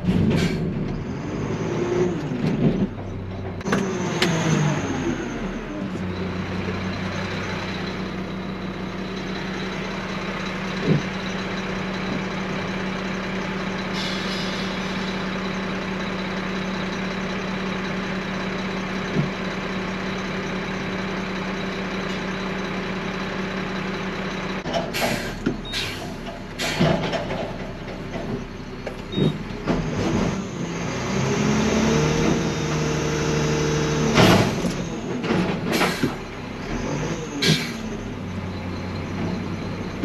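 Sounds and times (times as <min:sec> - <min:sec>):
garbage truck engine idling: 0:05.4 - 0:29.9, 0:32.2 - 0:36.8, 0:37.4 - 0:40.0.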